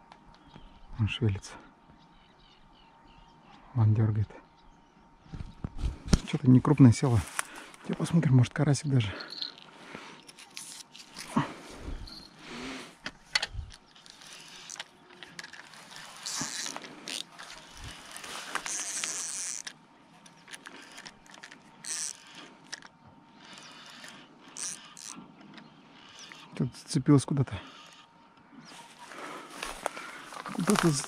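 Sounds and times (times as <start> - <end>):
line and rod scraping: 9.3 - 26.6
fishing reel clicking: 13.9 - 25.2, 25.9 - 26.5.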